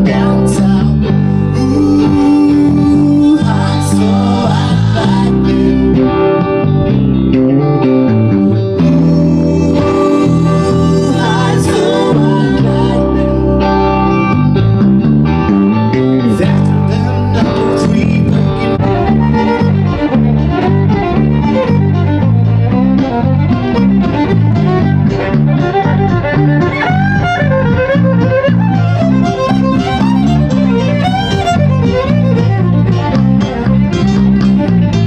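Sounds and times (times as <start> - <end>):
electric bass guitar: 0.0 - 35.0
keyboard: 0.0 - 35.0
violin melody: 8.8 - 14.3, 17.6 - 35.0.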